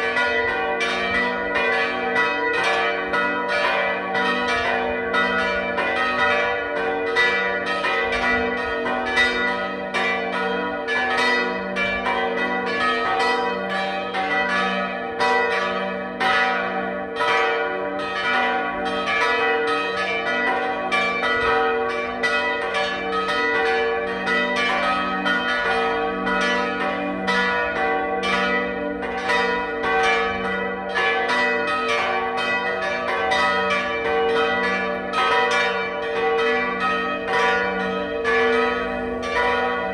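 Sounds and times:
church bells pealing: 0.0s - 39.9s.

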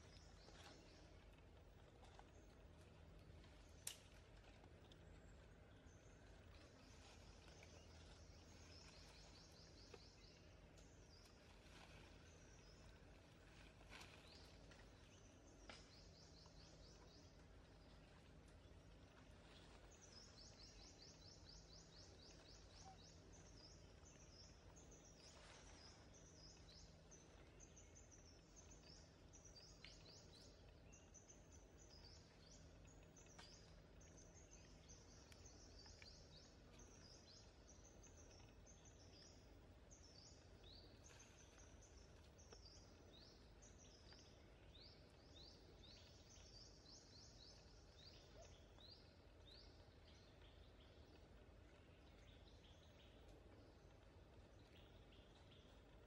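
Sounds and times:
low steady hum: 0.0s - 56.0s.

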